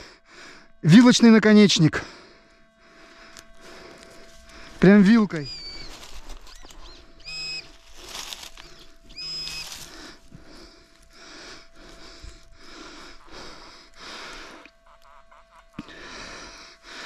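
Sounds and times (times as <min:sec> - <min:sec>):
faint steady hum: 0:00.0 - 0:17.0
soft rhythmic scraping and rustling: 0:02.4 - 0:04.9, 0:05.7 - 0:15.8
metal detector beeps: 0:04.8 - 0:09.9.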